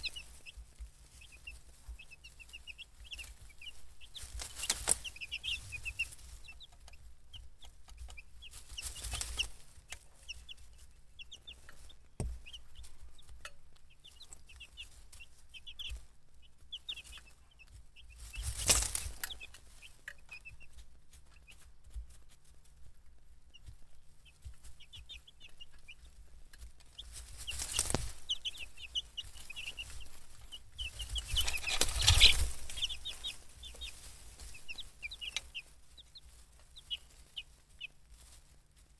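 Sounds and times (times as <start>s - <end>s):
rustling bursts: 0.0s - 6.6s, 7.9s - 10.8s, 18.1s - 19.8s, 26.8s - 38.9s
baby chicks peeping: 0.0s - 38.9s.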